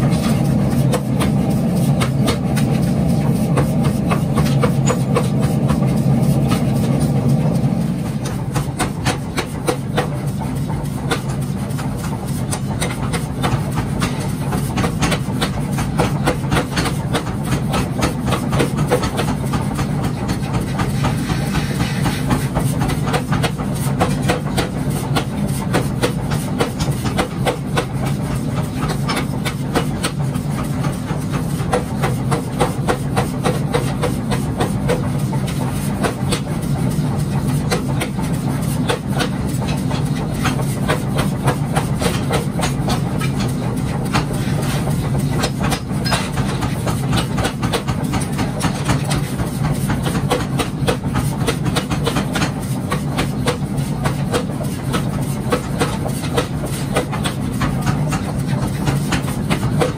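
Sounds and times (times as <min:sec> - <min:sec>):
low machine hum: 0:00.0 - 0:59.9
power hammer pounding steel: 0:00.0 - 0:59.9.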